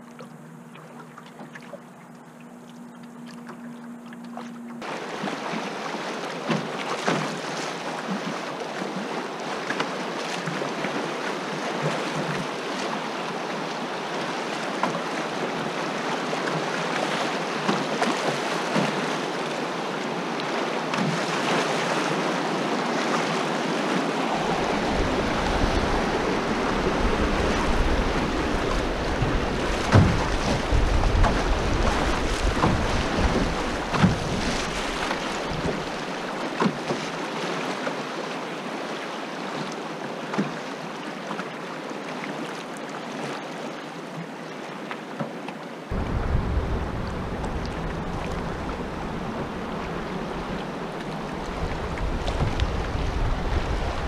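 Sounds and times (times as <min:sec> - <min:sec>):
river water rushing and splashing: 0:00.0 - 0:54.0
wind buffeting microphone: 0:24.0 - 0:36.2, 0:45.9 - 0:54.0.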